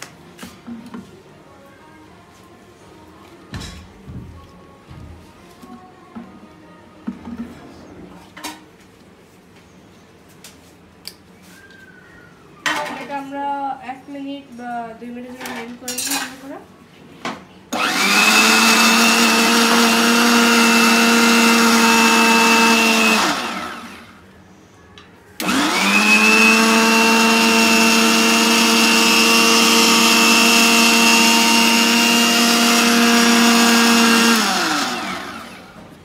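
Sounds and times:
mixer grinder motor whining: 17.7s - 24.2s, 25.4s - 35.9s.

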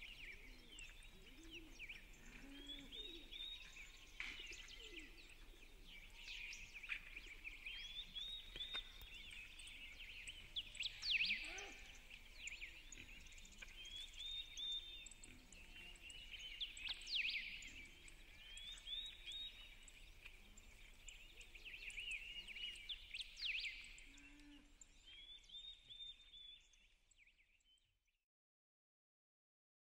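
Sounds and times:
faint low cooing: 0.0s - 8.2s, 11.1s - 12.0s
songbirds chirping and trilling: 0.0s - 28.1s
loud bird call: 11.1s - 12.1s.

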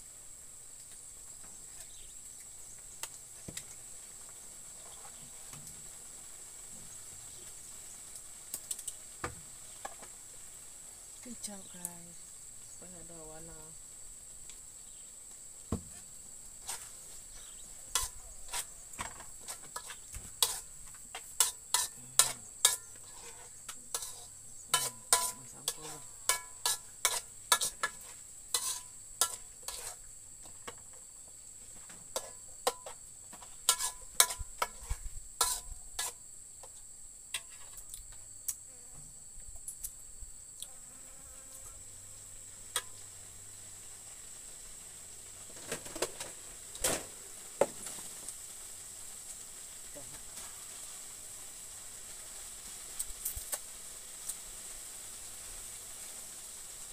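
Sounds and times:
metal spoon scraping a wok: 16.6s - 16.9s, 17.9s - 30.1s, 32.1s - 36.2s, 37.3s - 37.8s.

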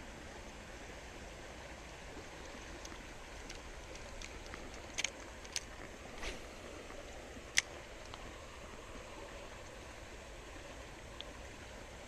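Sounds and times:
creek water running over rocks: 0.0s - 12.0s
sharp clicks: 2.8s - 5.7s.

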